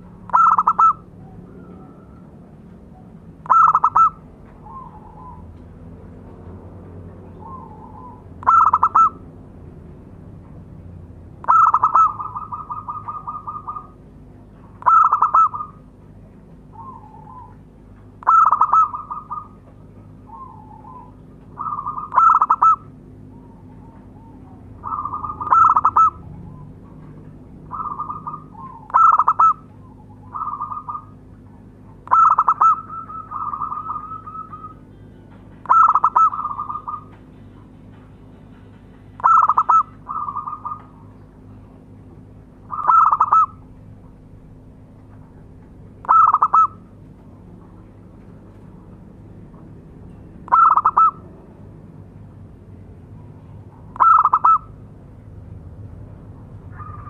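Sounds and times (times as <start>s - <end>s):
dove cooing: 0.0s - 5.7s, 7.3s - 9.3s, 11.4s - 14.0s, 14.6s - 16.0s, 16.6s - 37.3s, 39.2s - 41.2s, 42.6s - 44.6s, 46.0s - 47.0s, 50.5s - 51.3s, 53.9s - 54.8s, 56.6s - 57.0s.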